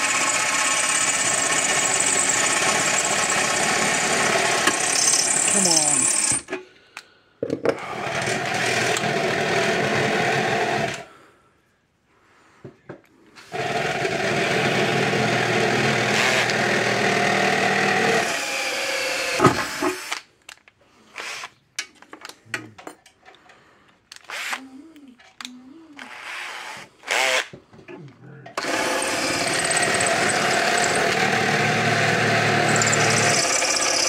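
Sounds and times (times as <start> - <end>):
power drill into sheet metal: 0.0 - 6.5, 7.9 - 11.0, 13.5 - 20.3, 28.6 - 34.0.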